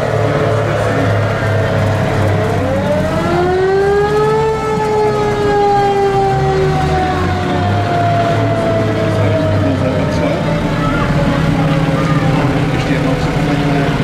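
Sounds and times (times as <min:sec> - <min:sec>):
military vehicle engines running: 0:00.0 - 0:14.0
vehicle siren winding up: 0:01.5 - 0:12.1.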